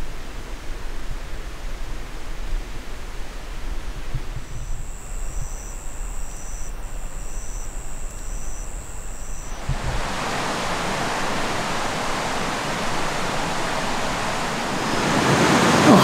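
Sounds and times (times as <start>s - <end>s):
faint high chirp: 4.2s - 14.9s
high steady tone: 4.2s - 15.1s
river rushing: 4.7s - 16.0s.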